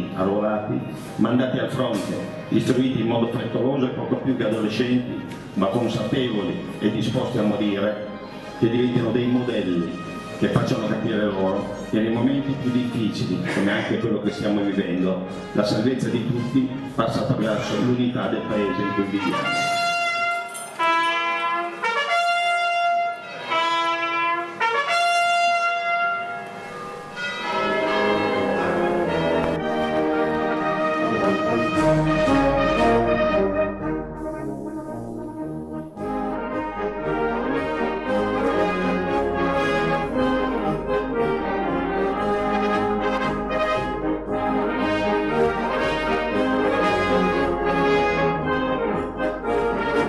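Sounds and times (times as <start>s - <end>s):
brass band playing: 0.0s - 50.0s
solo trumpet ceremonial call: 18.2s - 35.1s, 36.0s - 50.0s.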